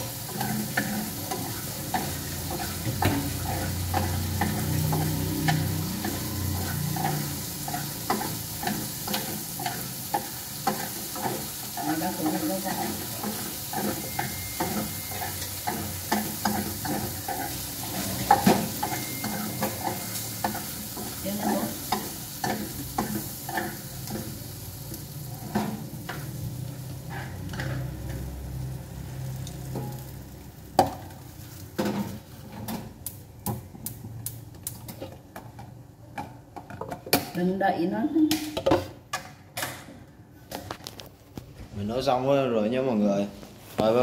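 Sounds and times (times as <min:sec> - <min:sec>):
utensil scraping a pan: 0:00.0 - 0:24.4, 0:25.3 - 0:28.3
meat and onion sizzling in a pan: 0:00.0 - 0:32.4.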